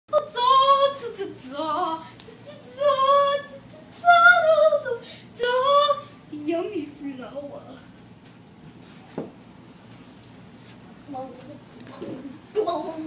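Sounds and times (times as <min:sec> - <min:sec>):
woman singing wordless tune: 0:00.1 - 0:07.8.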